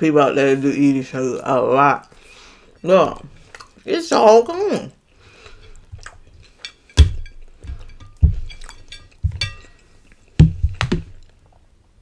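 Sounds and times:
plate knocking and clinking on table: 0:06.9 - 0:09.7.

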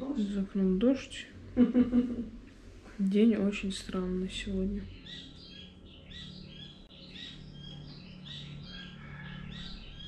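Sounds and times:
steady low hum: 0:00.0 - 0:10.0
small animals chirping: 0:04.8 - 0:10.0.

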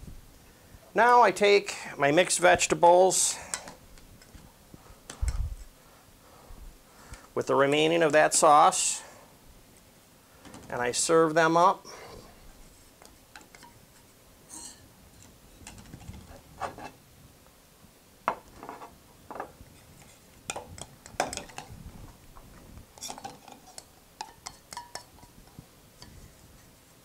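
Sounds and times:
metal spoon scraping saucepan: 0:13.5 - 0:14.9.

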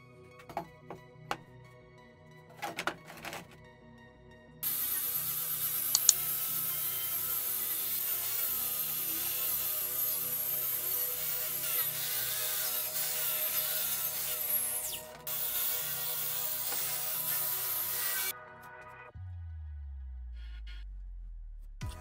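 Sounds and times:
angle grinder whining on metal: 0:04.6 - 0:18.3
sharp click: 0:05.9 - 0:06.2.

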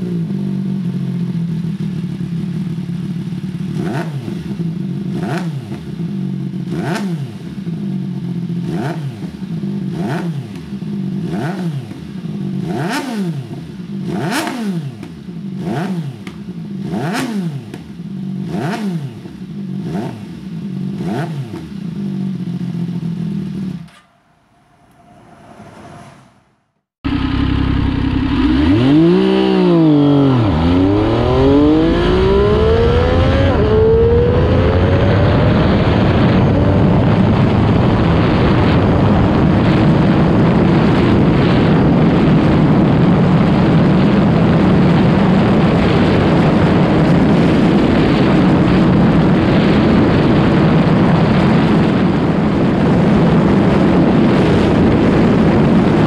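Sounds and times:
motorcycle engine accelerating: 0:00.0 - 0:56.0
wind rushing on microphone: 0:28.9 - 0:56.0.

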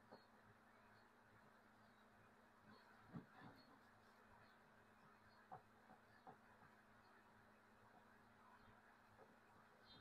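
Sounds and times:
faint room hum: 0:00.0 - 0:10.0.

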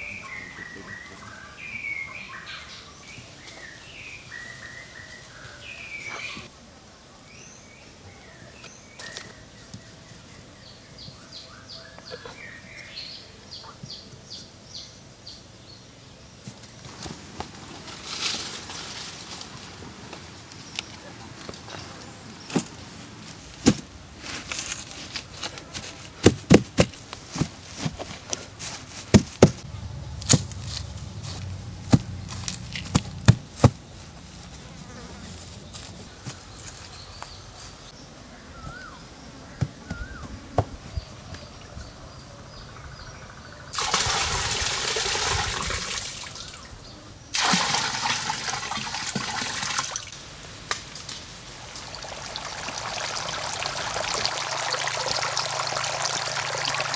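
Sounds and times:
birds chirping: 0:00.0 - 0:06.5, 0:07.3 - 0:16.7, 0:29.6 - 0:47.3
hands tapping turf: 0:24.6 - 0:29.6, 0:30.2 - 0:34.1
low buzzing hum: 0:29.6 - 0:33.6.

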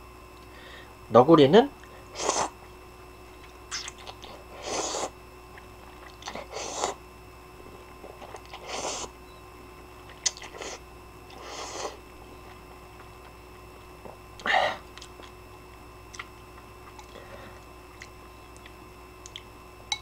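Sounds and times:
person slurping noodles: 0:02.2 - 0:02.6, 0:03.7 - 0:05.2, 0:06.2 - 0:07.0, 0:08.5 - 0:09.1, 0:10.3 - 0:12.0.

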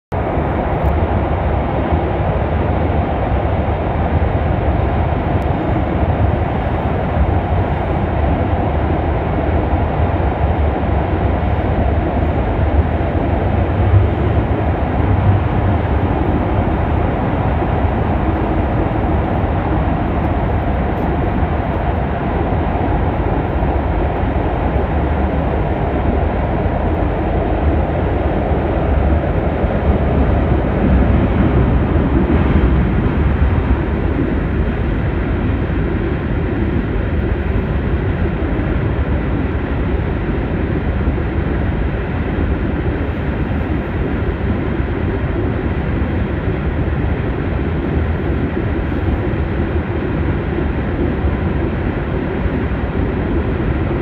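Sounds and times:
train wheels rumbling on rails: 0:00.1 - 0:54.0.

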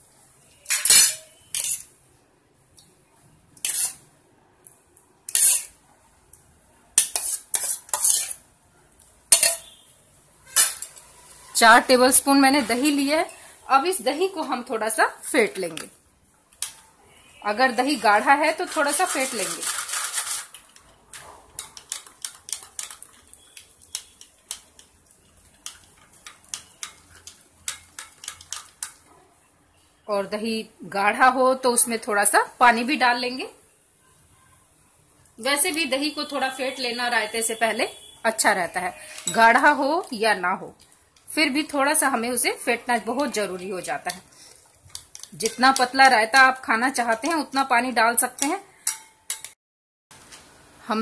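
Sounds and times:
spoon scraping steel bowl: 0:00.6 - 0:01.9, 0:03.6 - 0:04.0, 0:05.3 - 0:05.8, 0:07.0 - 0:08.4, 0:09.3 - 0:09.8, 0:17.8 - 0:20.6, 0:21.5 - 0:29.0, 0:38.8 - 0:40.1, 0:43.0 - 0:47.4.

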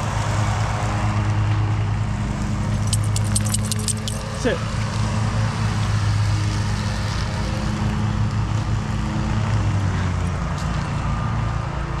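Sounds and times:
riding lawnmower engine droning: 0:00.0 - 0:12.0.

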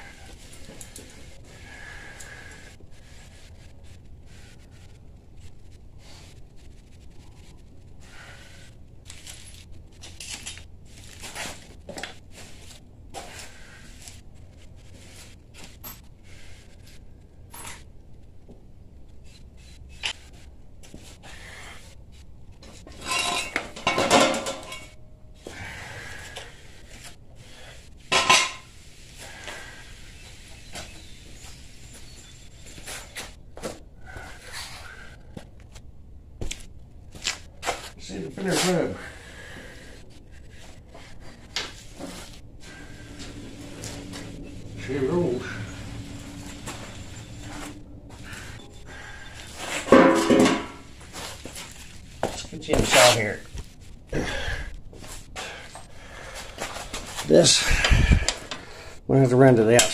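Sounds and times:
metal tools clinking: 0:22.9 - 0:25.0.

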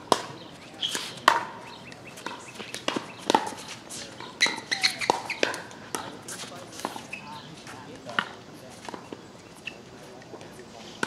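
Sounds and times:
paddles hitting plastic ball: 0:00.1 - 0:03.8.

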